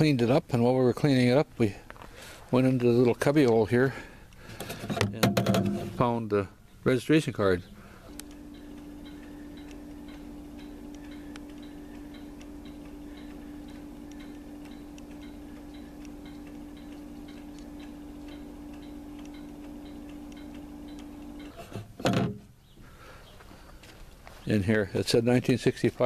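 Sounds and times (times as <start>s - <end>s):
low hum: 7.6s - 22.6s
clock ticking: 8.1s - 21.8s.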